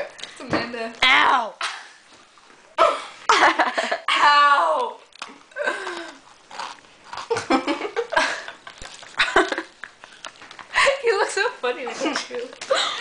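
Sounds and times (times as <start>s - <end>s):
girls laughing and giggling: 3.2s - 4.2s, 7.3s - 10.0s, 10.6s - 13.0s.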